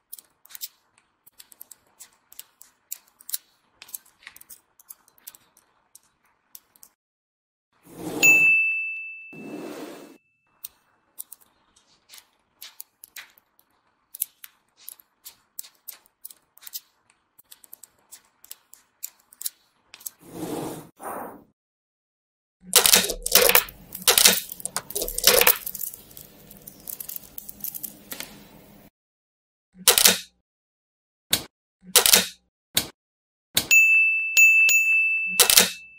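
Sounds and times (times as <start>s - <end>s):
magnet balls clicking: 22.8s - 28.1s.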